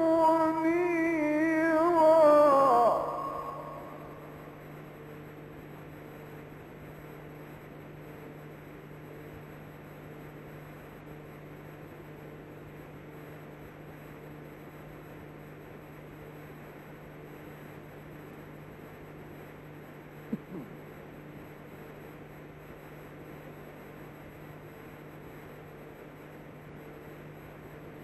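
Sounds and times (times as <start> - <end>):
low hum with hiss: 0.0 - 28.0.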